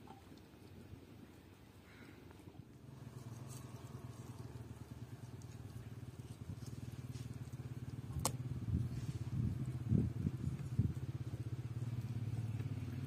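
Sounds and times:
small engine humming: 0:02.9 - 0:13.0.

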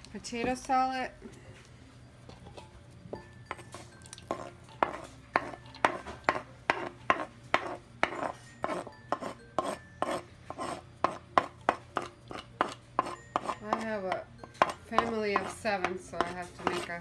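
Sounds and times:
utensil scraping onion on wooden board: 0:04.3 - 0:17.0.

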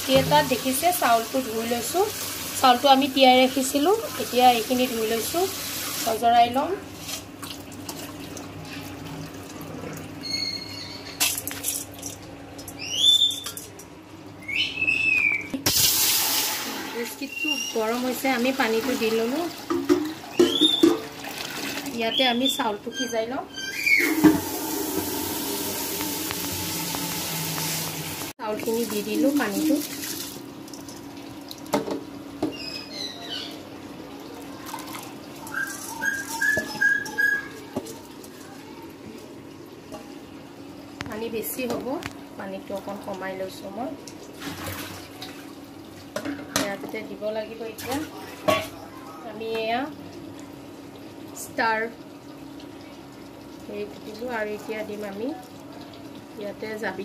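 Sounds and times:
tap water running: 0:00.0 - 0:13.9, 0:15.6 - 0:57.0
whistled calls: 0:12.8 - 0:13.5, 0:14.4 - 0:15.6, 0:17.2 - 0:17.9, 0:20.3 - 0:20.9, 0:35.4 - 0:37.7.

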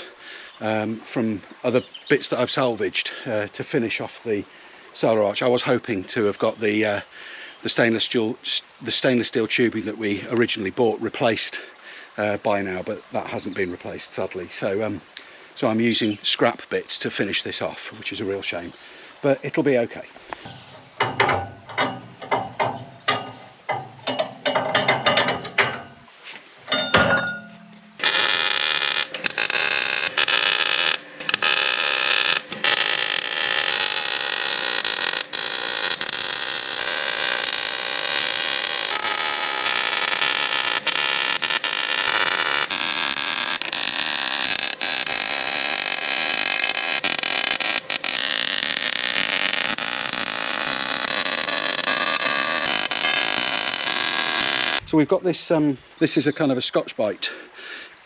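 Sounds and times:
metal tubing clattering: 0:20.5 - 0:26.1, 0:26.7 - 0:42.6
arc welder buzzing: 0:28.0 - 0:54.8.

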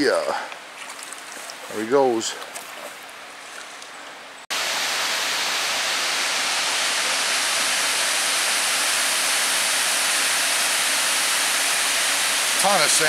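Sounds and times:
water rushing down a spillway: 0:04.5 - 0:13.0.

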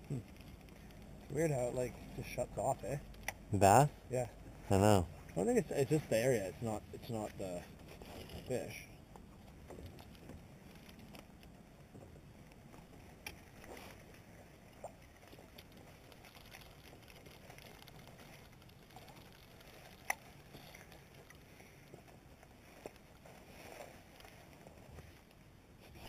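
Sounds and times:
low hiss: 0:00.0 - 0:09.5
faint sharp clicks and knocks: 0:02.6 - 0:03.5, 0:07.2 - 0:25.5.

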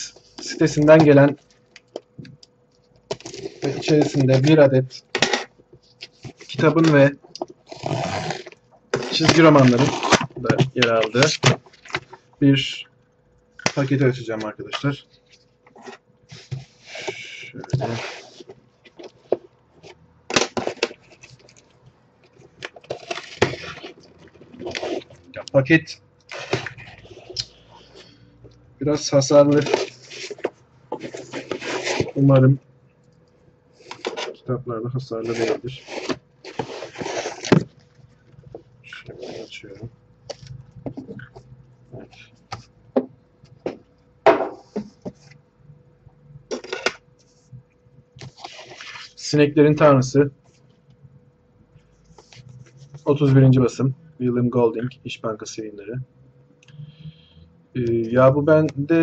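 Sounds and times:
faint steady hum: 0:00.0 - 0:59.0
cardboard package rustling: 0:05.4 - 0:12.2, 0:13.7 - 0:25.2, 0:29.3 - 0:32.4, 0:35.2 - 0:39.5.

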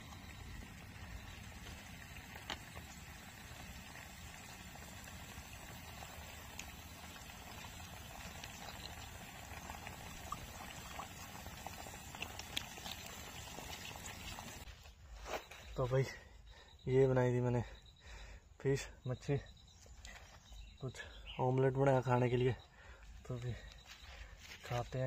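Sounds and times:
food sizzling: 0:00.0 - 0:14.7
small pops and ticks: 0:01.1 - 0:14.6.

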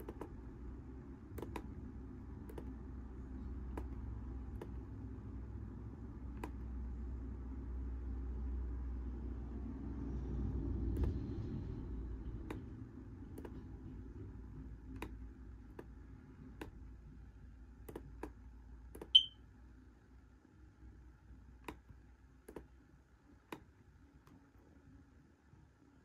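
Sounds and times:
laptop button clicks: 0:00.0 - 0:00.4, 0:01.4 - 0:01.7, 0:02.5 - 0:02.8, 0:19.0 - 0:19.3
short high-pitched beep: 0:19.1 - 0:19.4.

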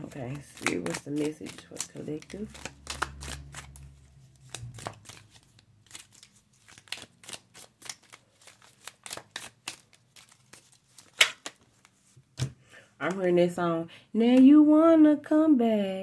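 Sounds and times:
cards being shuffled: 0:00.0 - 0:12.6.

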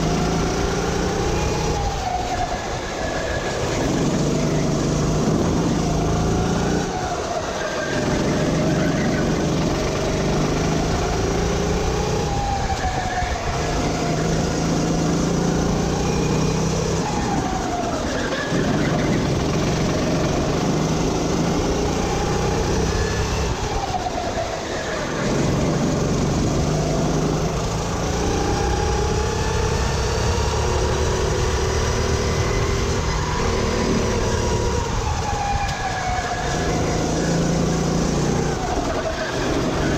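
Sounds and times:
kart engine revving: 0:00.0 - 0:39.9
road rumble: 0:00.0 - 0:39.9
wind noise: 0:00.0 - 0:39.9.

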